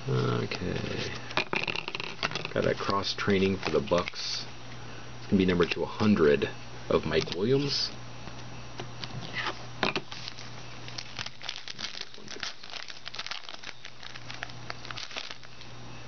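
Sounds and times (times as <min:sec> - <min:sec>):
foil wrapper crinkling and tearing: 0:02.2 - 0:04.2, 0:10.1 - 0:15.7.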